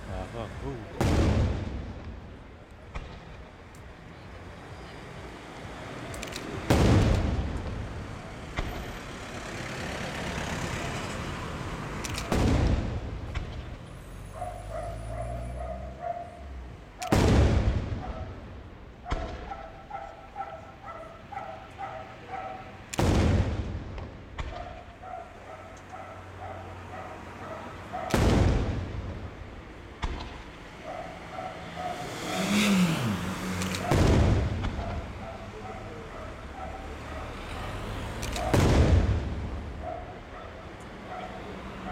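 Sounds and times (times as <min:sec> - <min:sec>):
firework shells booming with echo: 0:00.9 - 0:04.0, 0:06.4 - 0:09.2, 0:12.1 - 0:13.8, 0:16.8 - 0:26.2, 0:27.1 - 0:31.6, 0:33.6 - 0:37.0, 0:38.1 - 0:41.2.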